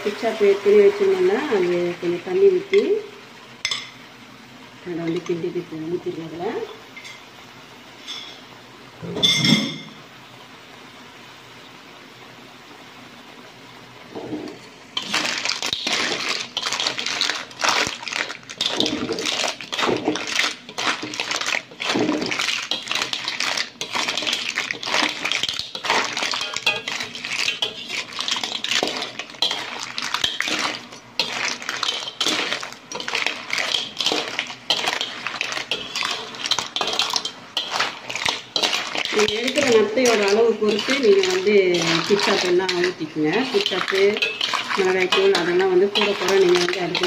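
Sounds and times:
metal spatula scraping a wok: 14.2 - 47.0
clam shells rattling: 15.0 - 47.0.

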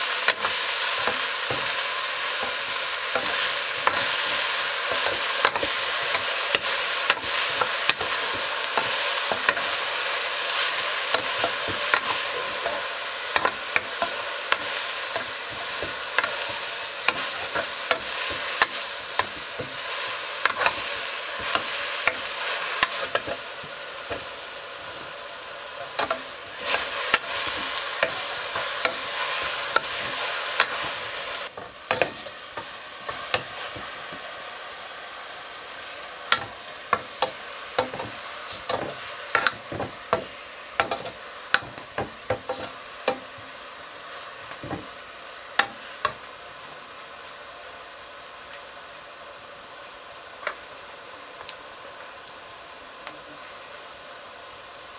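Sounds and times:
vegetables sizzling in a pan: 0.0 - 54.9
steel ladle scraping a pan: 25.8 - 33.8, 36.3 - 43.3.

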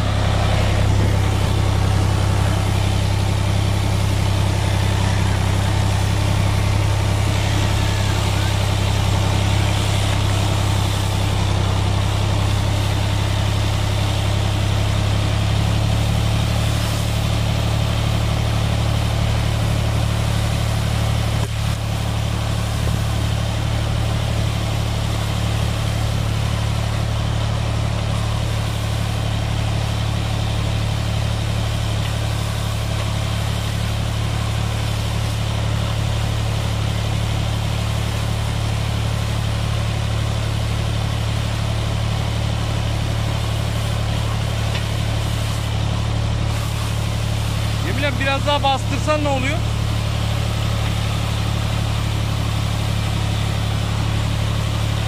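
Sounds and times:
tractor engine running: 0.0 - 55.0
weeder cutting soil: 0.0 - 55.0.

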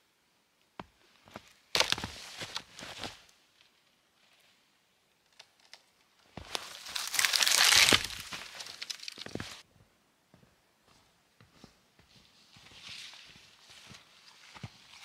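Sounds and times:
footsteps crunching through snow: 1.2 - 3.3, 6.4 - 9.6, 10.9 - 15.0
cracks of brush: 1.7 - 3.3, 5.2 - 9.6.

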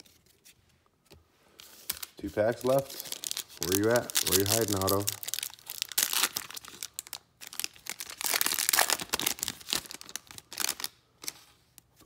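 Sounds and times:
foil wrapper crinkling and tearing: 1.8 - 11.4.

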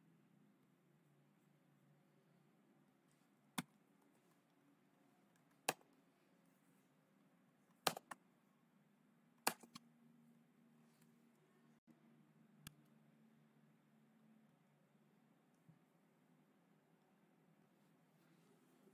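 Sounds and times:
faint low hum: 0.0 - 18.9
computer mouse clicking: 7.8 - 8.2, 9.4 - 9.8.

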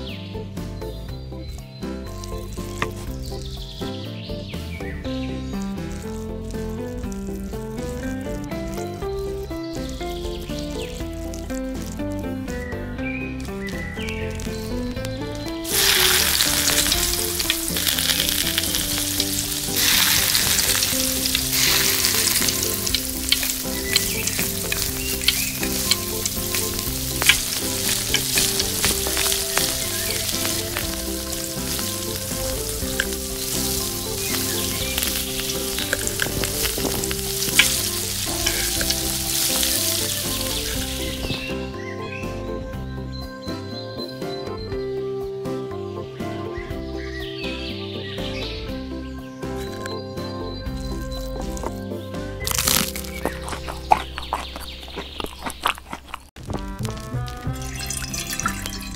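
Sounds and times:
hot oil sizzling: 2.0 - 3.8, 5.5 - 12.3, 13.4 - 41.7, 52.4 - 58.9.

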